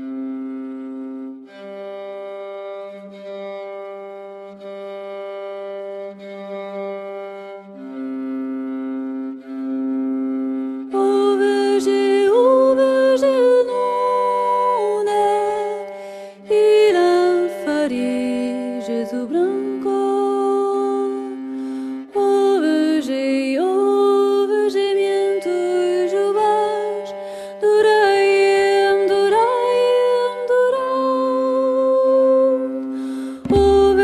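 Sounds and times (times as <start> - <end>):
slow low held notes: 32.7 - 34.0
higher sliding melody: 33.4 - 34.0.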